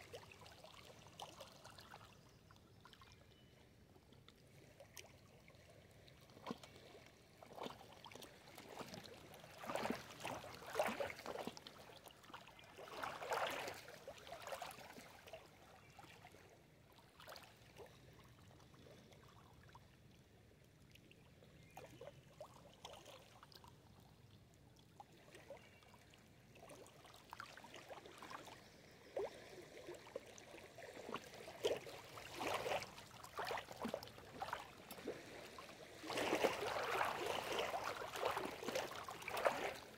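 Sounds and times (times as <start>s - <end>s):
waves lapping over stones: 31.1s - 39.9s.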